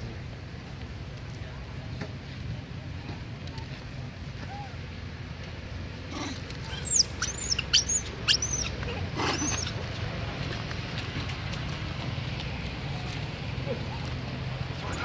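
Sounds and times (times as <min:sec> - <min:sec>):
young monkey squealing: 0:06.1 - 0:09.8.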